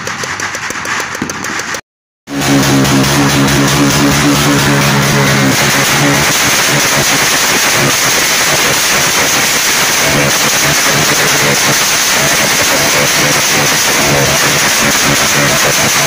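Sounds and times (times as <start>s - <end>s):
firework fountain crackling and hissing: 2.6s - 16.0s.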